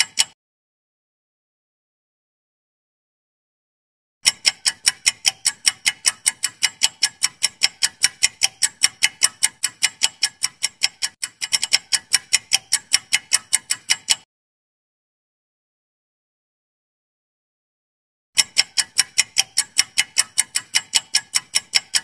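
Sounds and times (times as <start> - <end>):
fast clock ticking: 0.0 - 0.4, 4.2 - 14.3, 18.4 - 22.0.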